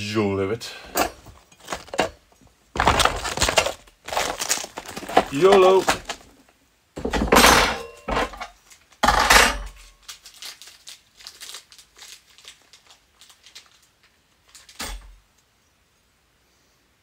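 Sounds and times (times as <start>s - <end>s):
packaging crinkling and rustling: 1.2s - 7.2s, 8.1s - 9.1s, 9.7s - 15.2s.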